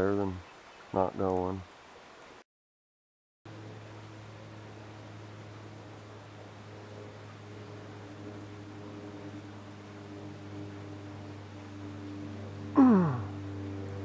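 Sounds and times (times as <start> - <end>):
low hum: 3.5 - 14.0.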